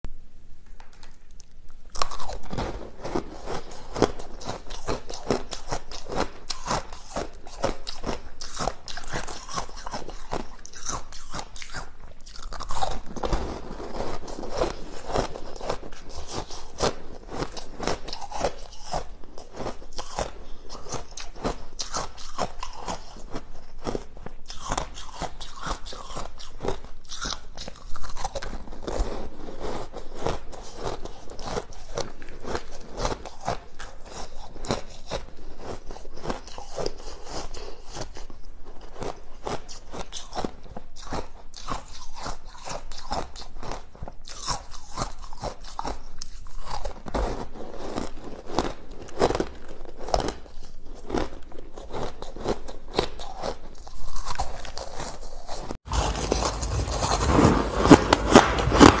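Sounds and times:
chewing crunchy ice: 1.7s - 59.0s.

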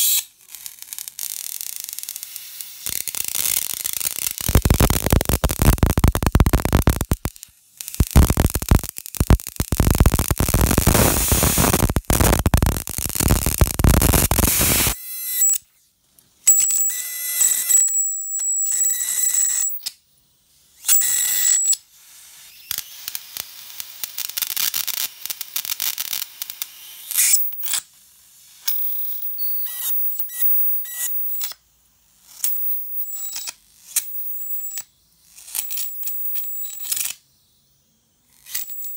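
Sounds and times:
electric arc buzzing and crackling: 0.1s - 15.0s
high-pitched whine: 2.9s - 7.4s, 8.0s - 15.0s.

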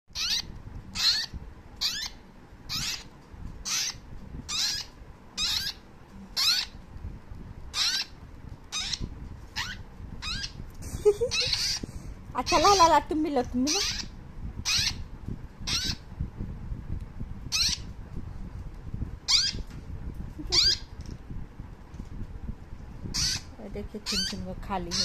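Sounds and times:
parrot chicks begging calls: 0.1s - 6.8s, 7.7s - 16.1s, 17.5s - 17.9s, 19.2s - 19.7s, 20.4s - 21.0s, 23.1s - 25.0s.

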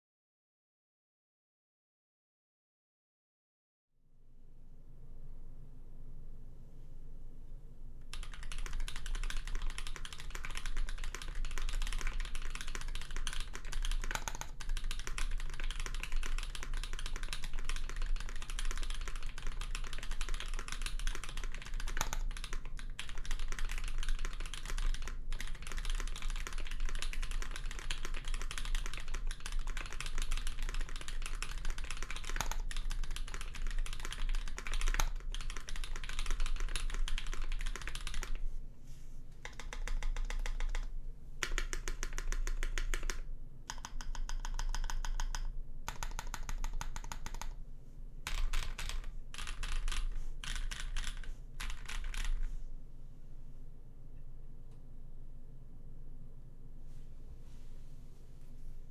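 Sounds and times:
mechanical keyboard typing: 8.1s - 38.4s, 39.4s - 47.6s, 48.3s - 52.5s.

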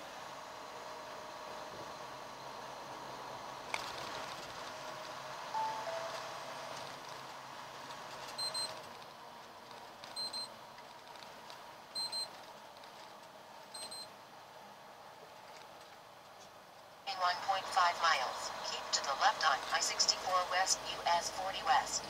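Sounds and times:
truck road noise: 0.0s - 13.7s
high double beep: 5.6s - 6.1s
falling two-note chime: 5.6s - 6.3s.

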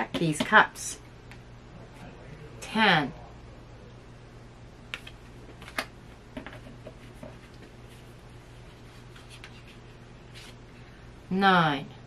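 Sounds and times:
steady low hum: 0.0s - 12.0s
tarot cards clicking and tapping: 4.9s - 7.7s.

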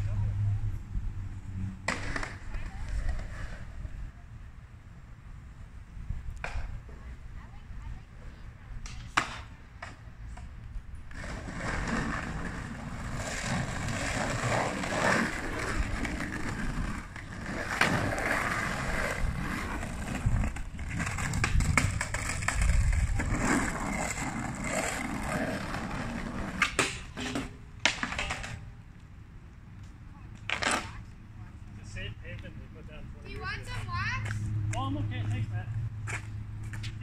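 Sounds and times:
skateboard wheels rolling on asphalt: 0.0s - 32.4s, 33.2s - 37.0s
skateboard clacking on rail: 25.7s - 28.6s.

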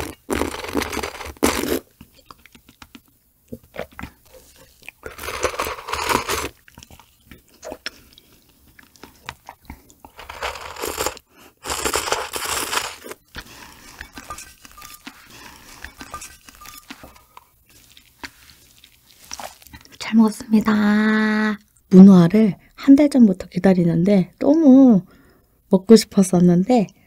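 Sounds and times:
loud slurping: 0.0s - 1.8s, 10.2s - 14.4s
mouth and swallowing sounds: 0.0s - 20.0s.

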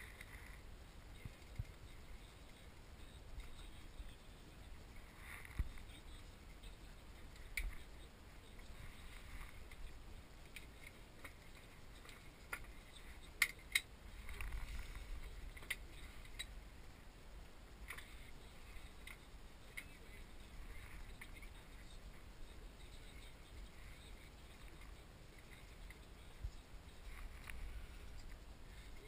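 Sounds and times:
wooden parts clicking and tapping: 10.5s - 14.6s.

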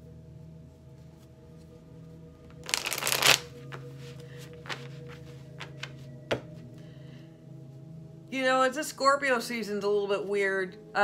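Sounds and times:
cards being shuffled: 2.5s - 6.1s.

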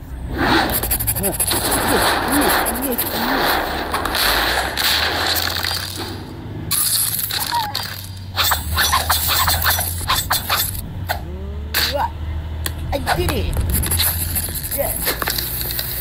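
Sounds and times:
sharp cracks and impacts: 0.4s - 10.8s.

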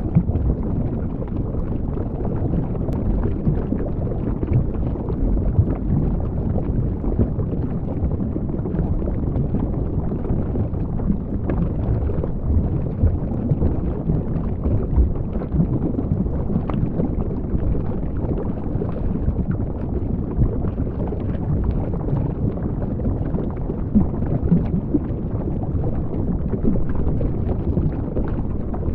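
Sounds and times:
underwater low rumble: 0.0s - 28.9s.

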